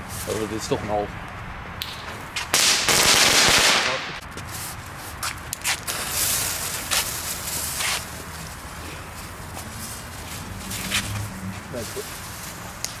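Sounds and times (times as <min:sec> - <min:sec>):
ground firework crackling: 0:01.8 - 0:10.9
firework hiss: 0:05.6 - 0:08.2.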